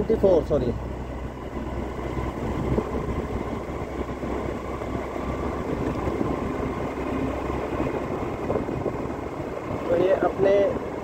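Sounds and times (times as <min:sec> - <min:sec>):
vehicle road and engine noise: 0:00.0 - 0:11.0.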